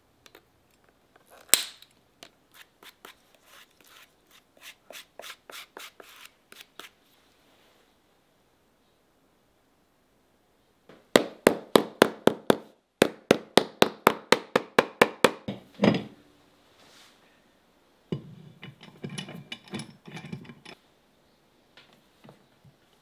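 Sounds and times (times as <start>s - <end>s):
screw press scraping and creaking: 18.2s - 20.8s.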